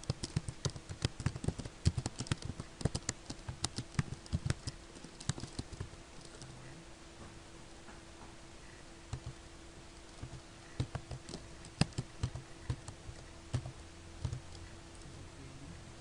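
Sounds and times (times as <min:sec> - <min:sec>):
keyboard typing: 0:00.0 - 0:06.5, 0:09.1 - 0:09.4, 0:10.0 - 0:15.2
faint steady hum: 0:00.0 - 0:16.0.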